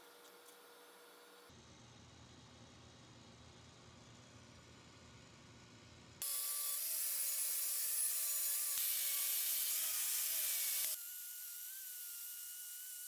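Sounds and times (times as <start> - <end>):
angle grinder sanding metal: 6.2 - 13.0.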